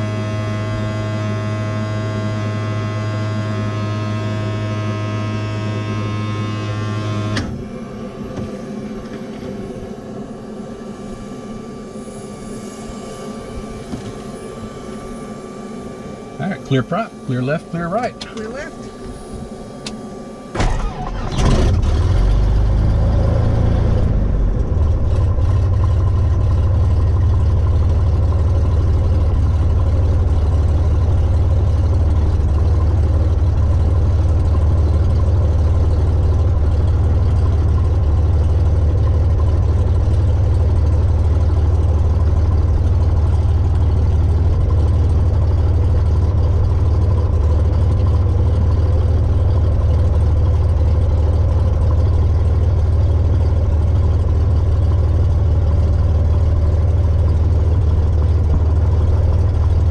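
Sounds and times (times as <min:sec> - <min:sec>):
piston aircraft engine starting and idling: 0:00.0 - 0:59.9.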